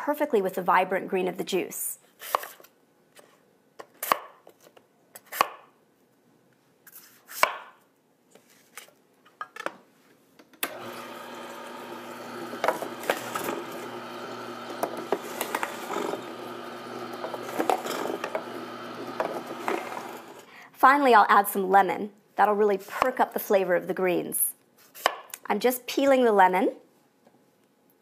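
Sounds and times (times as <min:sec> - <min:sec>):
knife chopping on cutting board: 0:07.3 - 0:07.7
juicer humming: 0:10.6 - 0:20.5.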